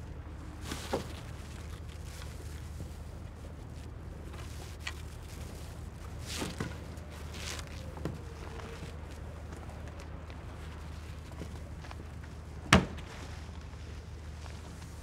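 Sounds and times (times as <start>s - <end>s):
rope handling rustles and clicks: 0.4s - 15.0s.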